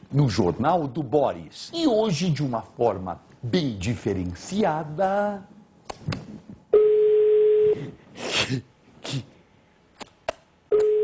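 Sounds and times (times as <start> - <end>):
telephone ringback tone: 10.7 - 11.0.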